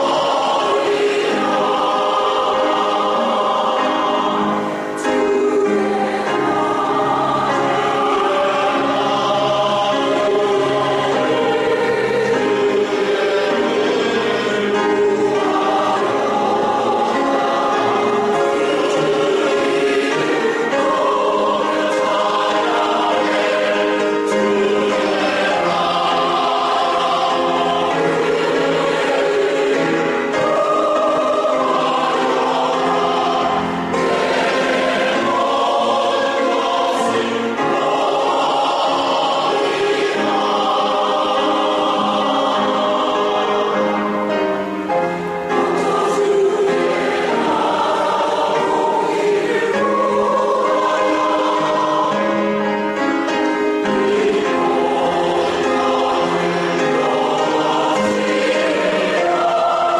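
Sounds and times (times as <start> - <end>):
choir singing a hymn: 0.0 - 59.9.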